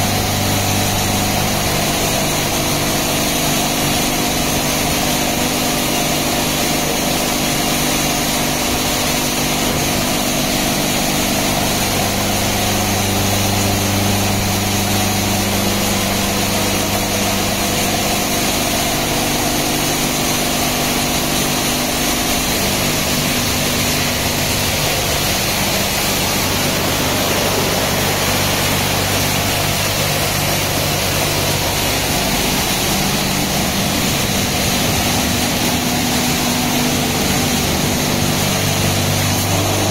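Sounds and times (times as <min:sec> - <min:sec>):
high-pressure water spraying: 0:00.0 - 0:39.9
low motor hum: 0:00.0 - 0:39.9.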